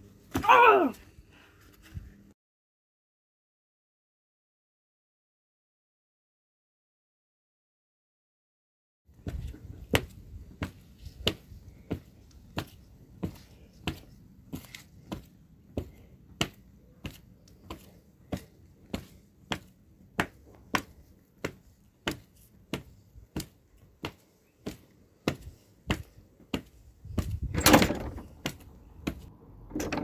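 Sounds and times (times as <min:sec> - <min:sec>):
footsteps on block paving: 0:09.2 - 0:27.5.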